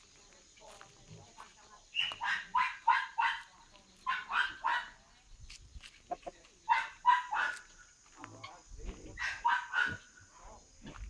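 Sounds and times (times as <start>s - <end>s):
dog barking: 2.1s - 5.0s, 6.7s - 7.8s, 9.2s - 10.1s.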